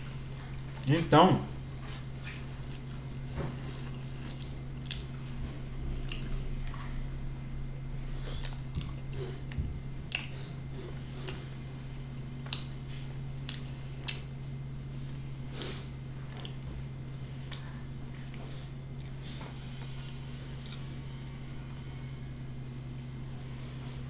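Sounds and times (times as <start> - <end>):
steady low hum: 0.0 - 24.0
man chewing with lip-smacking: 1.8 - 7.2, 8.0 - 11.7, 12.4 - 14.5, 15.4 - 21.9.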